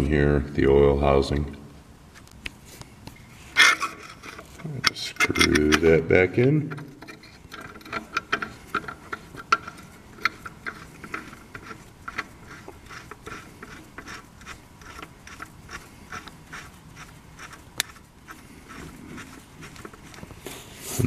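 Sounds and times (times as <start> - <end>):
metal threads clicking and rubbing: 3.6 - 6.1, 6.7 - 20.6.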